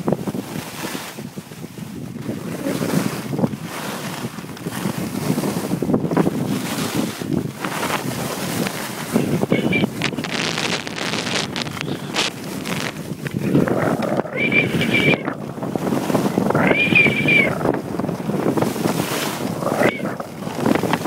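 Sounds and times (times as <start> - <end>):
wind buffeting microphone: 0.0 - 21.0
skis scraping over snow: 2.7 - 14.0, 18.4 - 19.5.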